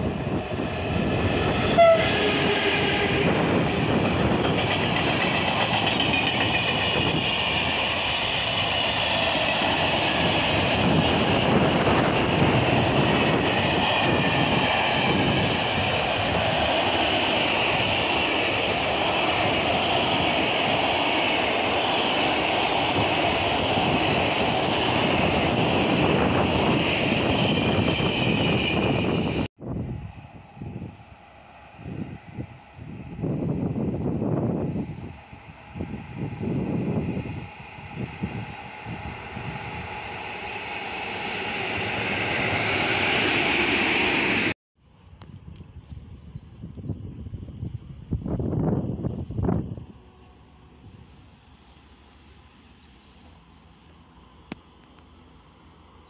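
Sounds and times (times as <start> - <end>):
train horn blast: 1.6 - 3.3.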